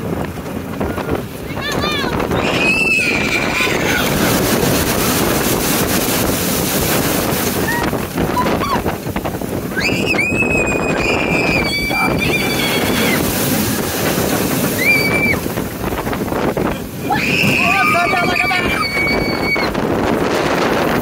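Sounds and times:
wind rushing over microphone: 0:00.0 - 0:21.0.

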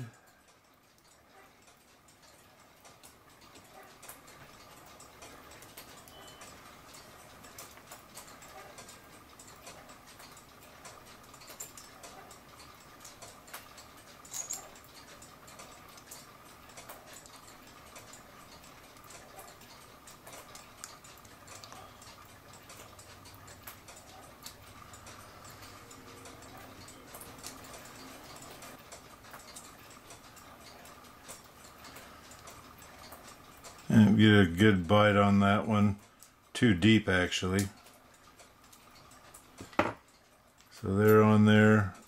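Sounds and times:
small metallic clicks and taps: 0:00.5 - 0:33.9.

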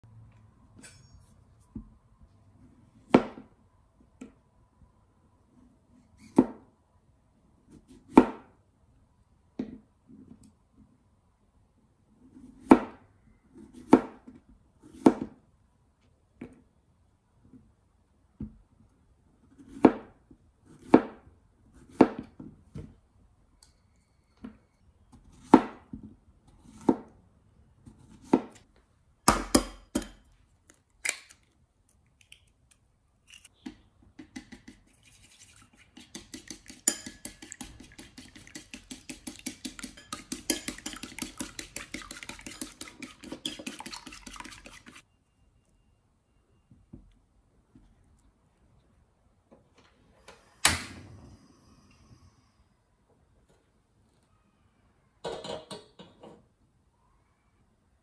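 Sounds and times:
knife chopping on plastic board: 0:13.8 - 0:15.4, 0:19.7 - 0:21.2, 0:21.9 - 0:22.3
egg beaten in ceramic bowl: 0:34.2 - 0:45.0.

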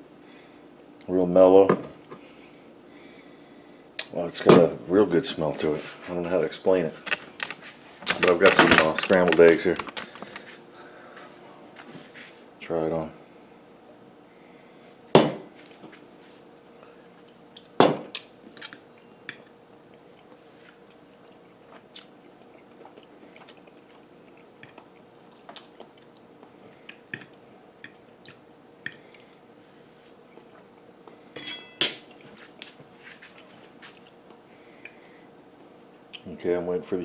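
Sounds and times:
chewing: 0:19.9 - 0:27.4
metal fork clinking on plate: 0:31.4 - 0:32.0.

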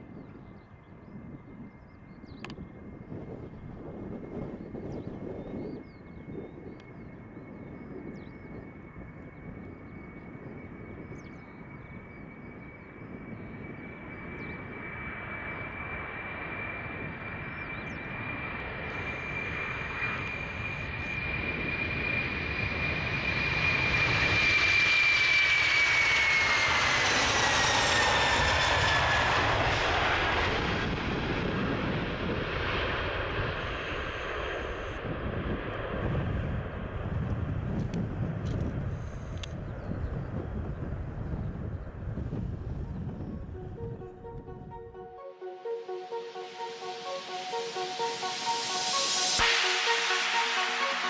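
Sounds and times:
jet engines roaring at takeoff: 0:00.0 - 0:44.1, 0:46.3 - 0:51.0
high jet whine: 0:08.0 - 0:35.3, 0:42.2 - 0:51.0.

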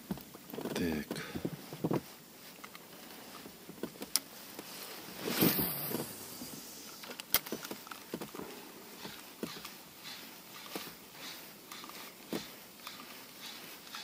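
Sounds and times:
rustling burst: 0:04.6 - 0:14.0.

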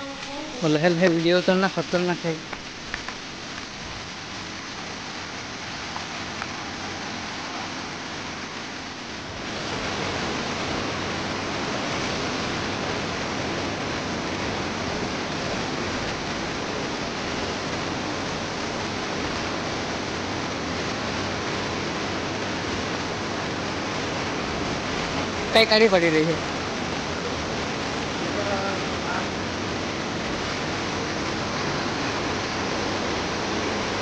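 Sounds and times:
waterfall rushing: 0:00.0 - 0:34.0.

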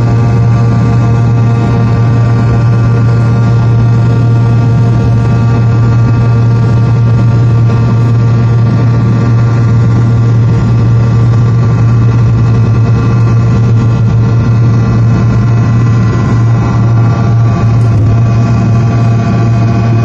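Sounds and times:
jet engines droning in cabin: 0:00.0 - 0:20.0
whining engine tones: 0:00.0 - 0:20.0
rushing noise: 0:12.0 - 0:20.0.

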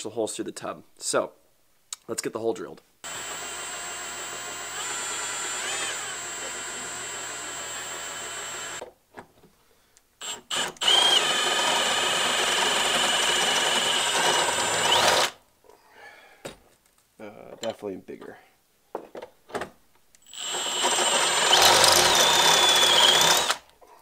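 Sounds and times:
cordless drill boring metal: 0:03.0 - 0:08.8, 0:10.2 - 0:15.4, 0:20.3 - 0:23.6
drill trigger blips: 0:03.0 - 0:08.8, 0:10.2 - 0:15.3, 0:20.2 - 0:23.6.

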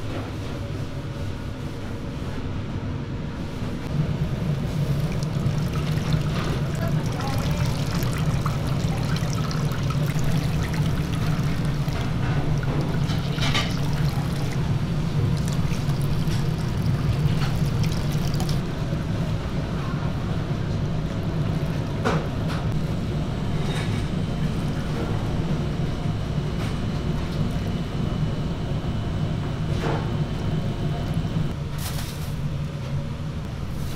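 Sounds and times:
steady low hum: 0:02.7 - 0:31.7
juice dribbling into a pan: 0:04.0 - 0:18.6.

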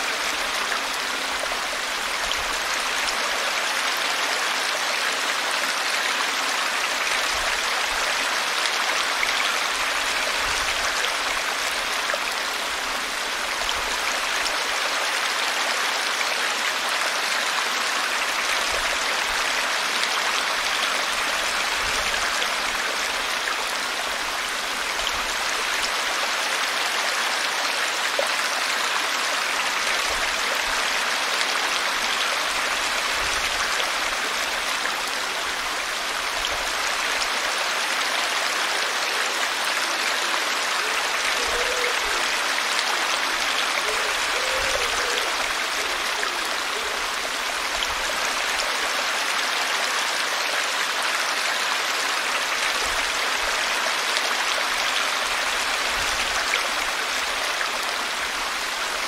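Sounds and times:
brook babbling: 0:00.0 - 0:59.0.

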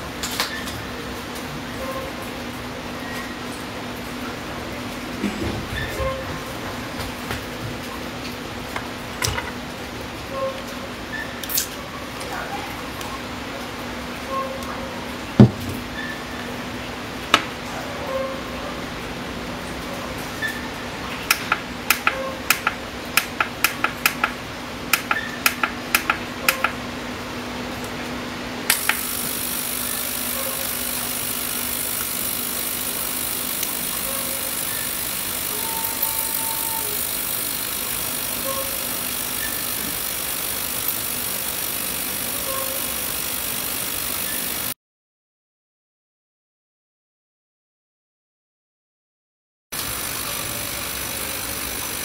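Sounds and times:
sharp clicks: 0:21.3 - 0:26.8, 0:28.7 - 0:29.8
ultrasonic cleaner hissing: 0:28.7 - 0:44.8, 0:49.8 - 0:52.0.

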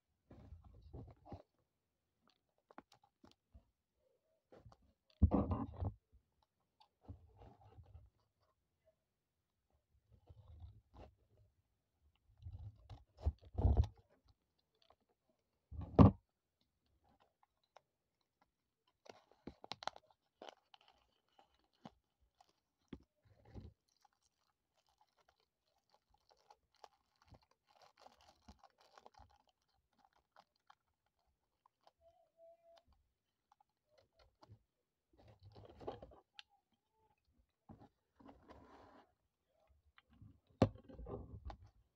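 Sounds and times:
plastic wrap crinkling: 0:19.6 - 0:32.0.

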